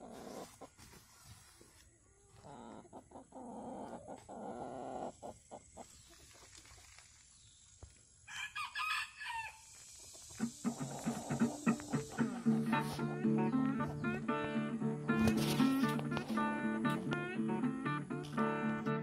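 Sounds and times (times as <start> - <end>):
chickens clucking: 0.0 - 7.1, 8.4 - 19.0
rooster crowing: 8.3 - 9.7.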